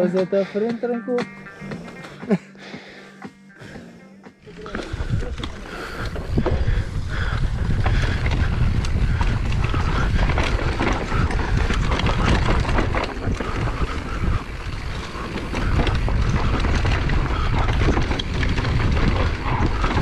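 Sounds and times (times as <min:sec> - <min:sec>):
tyres and bike clicking and rattling: 0:03.7 - 0:20.0
low rumble of bike on trail: 0:04.4 - 0:20.0
wind buffeting microphone: 0:04.5 - 0:20.0.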